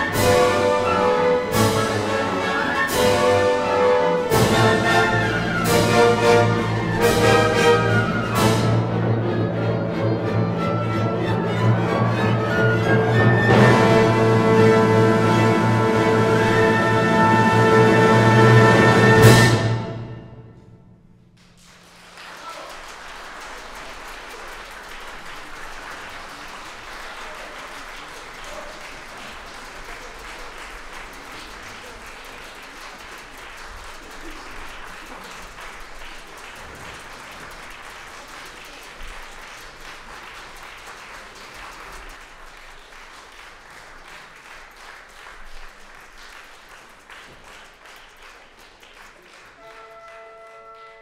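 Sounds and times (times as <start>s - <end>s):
audience applauding: 0.0s - 9.6s, 21.4s - 51.0s.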